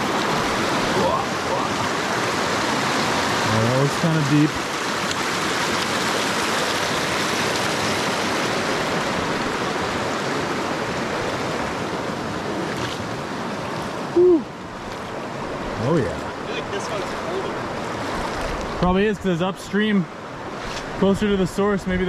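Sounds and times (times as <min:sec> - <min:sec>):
river water rushing: 0:00.0 - 0:22.0
short voice sound: 0:14.2 - 0:14.5.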